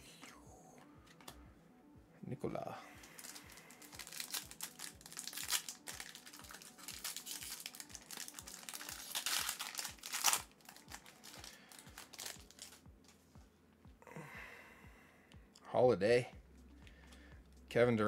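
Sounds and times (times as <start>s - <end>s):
faint music beat: 0.0s - 18.0s
foil wrapper crinkling and tearing: 3.2s - 12.8s.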